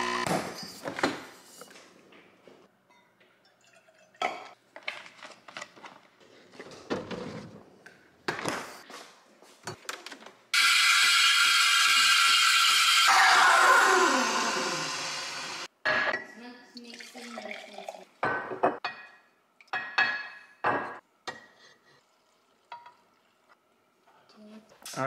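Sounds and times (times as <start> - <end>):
steam wand hissing: 10.6 - 15.7.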